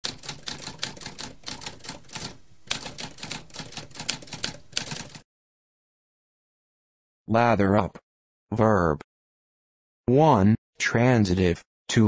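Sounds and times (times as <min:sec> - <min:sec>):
typewriter keys clacking: 0:00.0 - 0:05.2.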